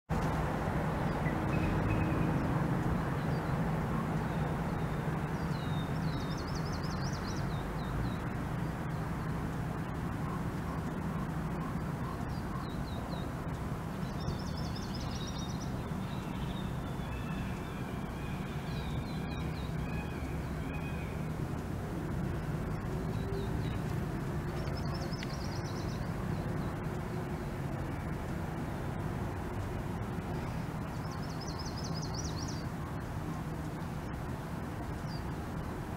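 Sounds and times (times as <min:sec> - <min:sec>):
birds chattering: 0:08.9 - 0:21.4, 0:22.3 - 0:27.9.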